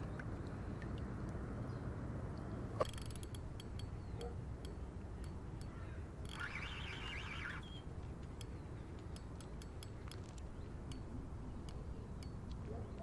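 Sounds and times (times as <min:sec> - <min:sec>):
fishing reel buzzing: 0:02.8 - 0:04.0, 0:04.6 - 0:07.7
reel clicks: 0:02.8 - 0:13.0.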